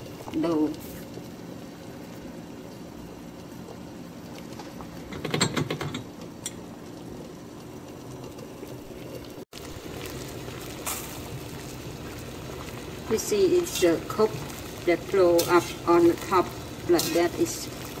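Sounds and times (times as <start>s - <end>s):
water simmering in a pot: 0.0s - 18.0s
clatter of clicks and knocks: 5.1s - 6.1s.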